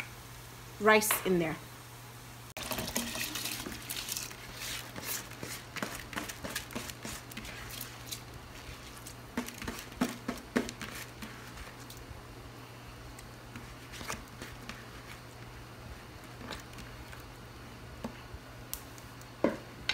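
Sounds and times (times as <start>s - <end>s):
steady low hum: 0.0s - 19.9s
rice pouring into water: 2.6s - 8.2s.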